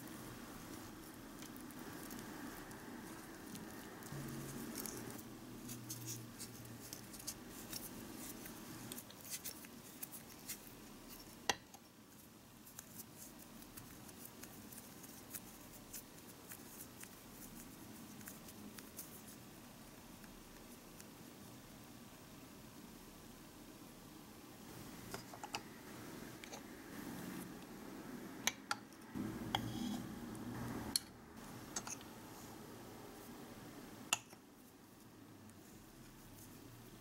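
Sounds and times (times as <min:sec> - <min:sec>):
fingers kneading dough: 0:00.0 - 0:21.7
wooden stick scraping glass bowl: 0:29.5 - 0:30.2.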